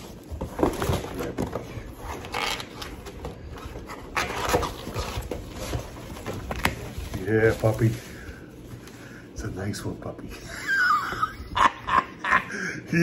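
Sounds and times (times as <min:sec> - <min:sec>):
cardboard box rustling and knocking: 0:00.0 - 0:02.2.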